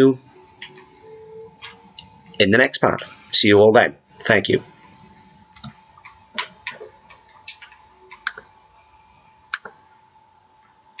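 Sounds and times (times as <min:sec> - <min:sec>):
faint hum: 0:00.0 - 0:11.0
computer mouse clicks: 0:09.5 - 0:09.8.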